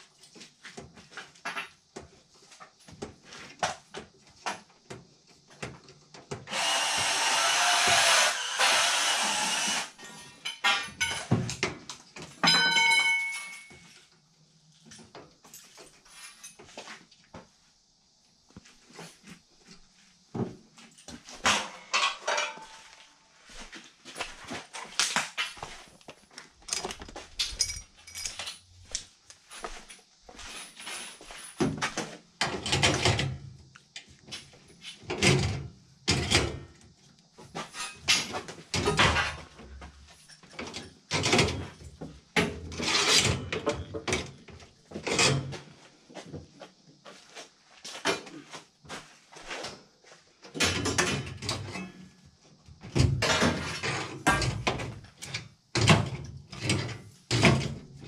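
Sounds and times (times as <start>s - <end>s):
metallic clanks and rattles: 10.0s - 14.0s, 21.4s - 22.9s, 26.6s - 28.7s.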